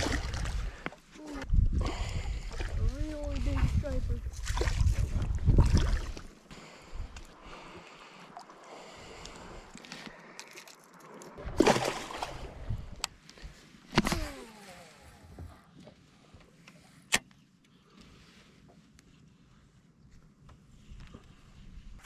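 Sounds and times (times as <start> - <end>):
water splashing and sloshing: 0.0 - 16.9
loud splash: 11.4 - 12.6.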